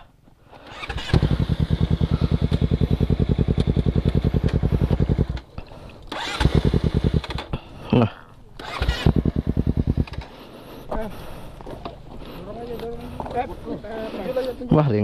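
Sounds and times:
motorcycle engine cranking: 0.5 - 7.6, 8.5 - 10.4.

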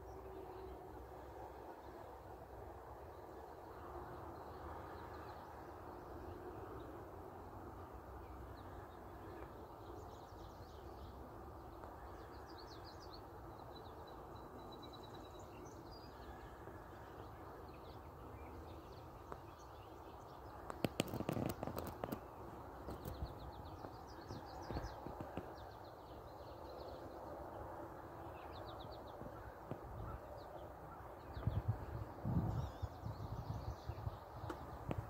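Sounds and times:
low rush of background noise: 0.0 - 35.0
songbird chirps: 7.9 - 35.0.

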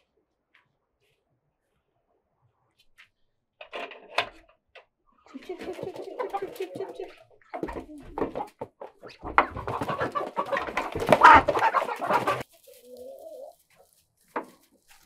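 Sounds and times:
chickens clucking and squawking: 5.3 - 14.6.

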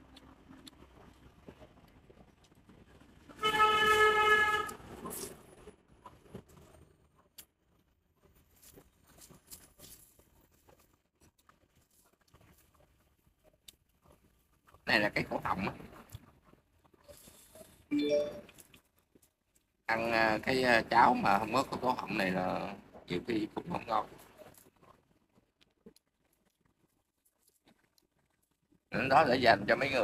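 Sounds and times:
horn honking: 3.4 - 4.8.

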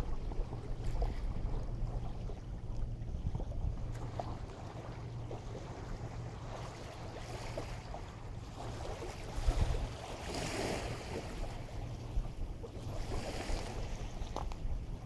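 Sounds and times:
waves washing ashore: 4.0 - 15.0
wind noise on microphone: 8.5 - 15.0.

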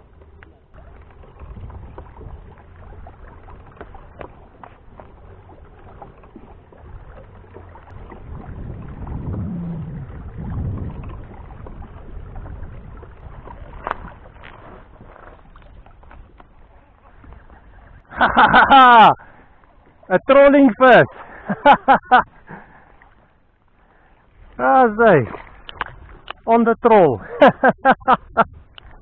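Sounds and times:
low rumble of water and drive: 0.0 - 29.0.

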